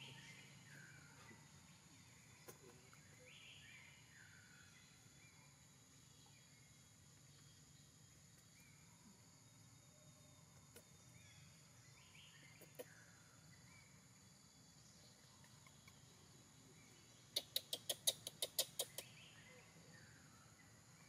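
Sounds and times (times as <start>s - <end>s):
short bird chirps: 16.8s - 19.8s.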